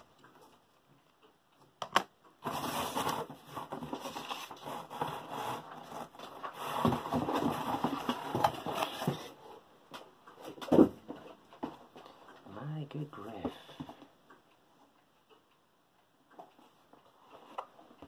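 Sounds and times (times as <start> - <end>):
cardboard rustling and scraping: 2.4 - 9.4.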